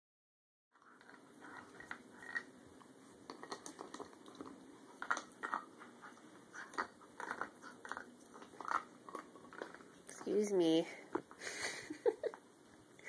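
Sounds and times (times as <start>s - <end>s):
puppy teeth chewing antler: 0.8s - 10.3s.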